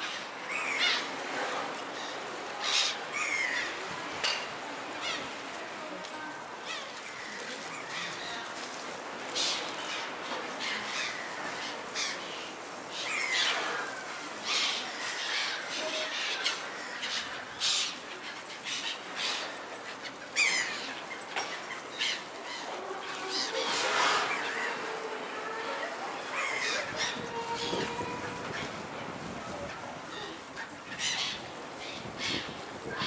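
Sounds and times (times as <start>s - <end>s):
steady background hiss: 0.0s - 33.0s
gulls squawking: 21.6s - 33.0s.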